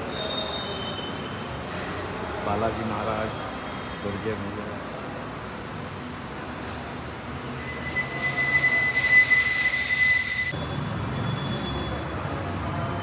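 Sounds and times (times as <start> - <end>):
high-pitched metallic ringing squeal: 7.6 - 10.6.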